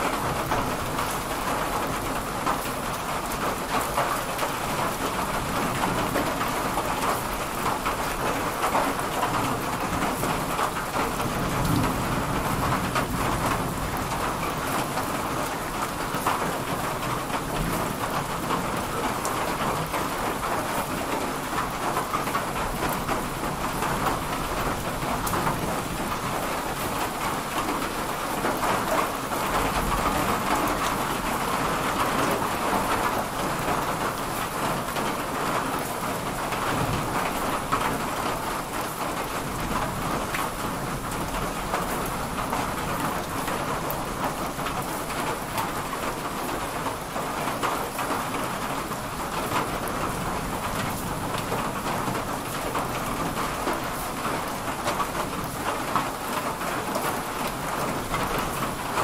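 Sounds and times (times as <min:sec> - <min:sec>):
steady rain pattering: 0:00.0 - 0:59.0
low rumble of thunder: 0:11.2 - 0:14.9.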